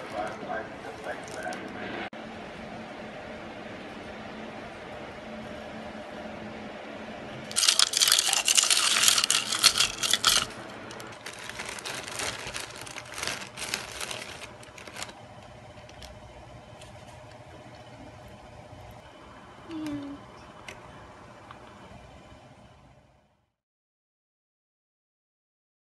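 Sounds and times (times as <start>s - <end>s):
plastic bag crinkling: 7.5s - 16.1s.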